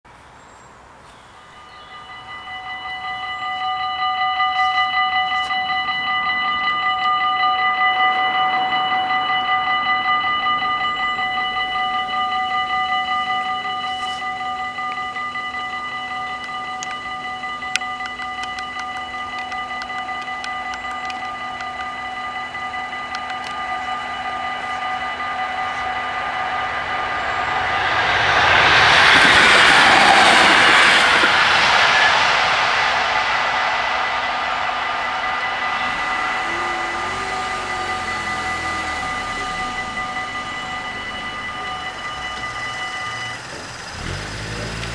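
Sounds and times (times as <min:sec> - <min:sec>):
approaching train rushing: 0:00.1 - 0:44.9
level crossing bells ringing: 0:01.3 - 0:44.9
car engine idling: 0:03.2 - 0:28.8, 0:29.9 - 0:44.9
sharp clicks: 0:17.8 - 0:22.0, 0:23.2 - 0:23.6.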